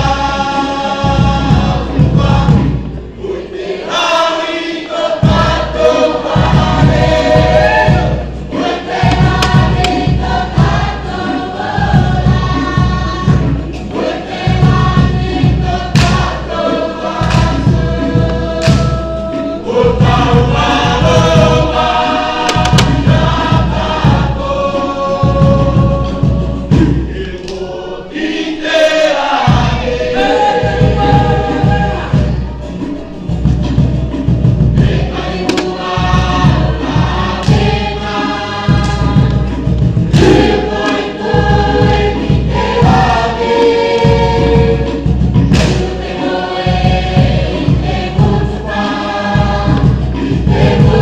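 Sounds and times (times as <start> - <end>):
group singing in chorus: 0.0 - 51.0
low drum beat: 5.2 - 11.1, 14.5 - 27.2, 30.5 - 32.5, 33.3 - 38.0, 38.6 - 48.6.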